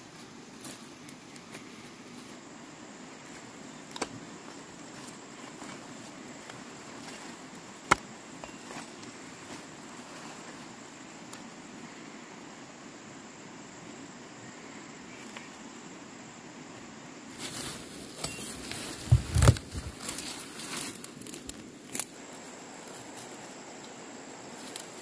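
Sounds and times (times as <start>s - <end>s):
faint insects: 0.0s - 25.0s
footsteps through dry leaves: 17.3s - 21.5s.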